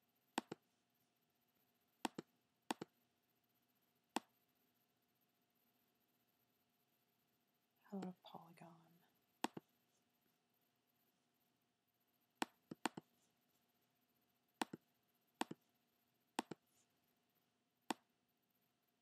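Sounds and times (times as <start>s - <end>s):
trackpad clicks: 0.4s - 0.6s, 2.0s - 2.9s, 9.4s - 9.6s, 16.4s - 16.6s.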